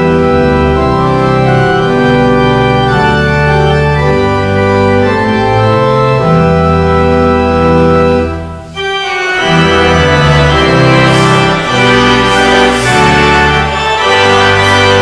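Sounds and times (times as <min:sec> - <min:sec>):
church organ playing a hymn: 0:00.0 - 0:15.0.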